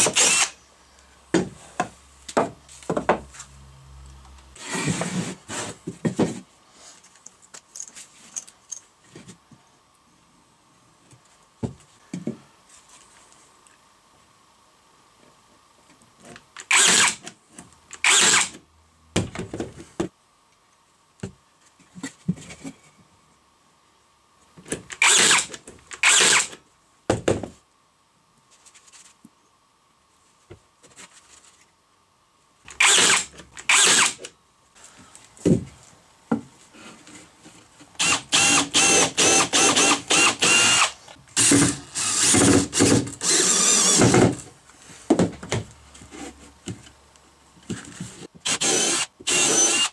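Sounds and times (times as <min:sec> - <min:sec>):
drill driving screws into wood: 0:00.0 - 0:00.6, 0:16.6 - 0:17.3, 0:17.9 - 0:18.6, 0:24.9 - 0:26.6, 0:32.7 - 0:34.3, 0:38.0 - 0:44.4, 0:48.4 - 0:49.9.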